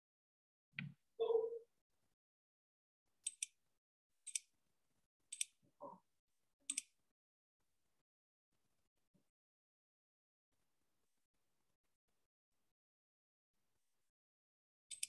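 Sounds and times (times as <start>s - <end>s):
computer mouse clicking: 3.3s - 3.5s.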